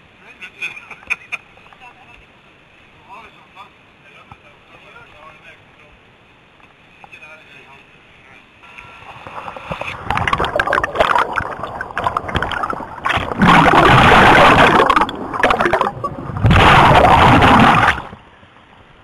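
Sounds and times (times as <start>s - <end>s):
water splashing and bubbling: 9.0s - 18.3s
rushing underwater churning: 9.0s - 18.5s.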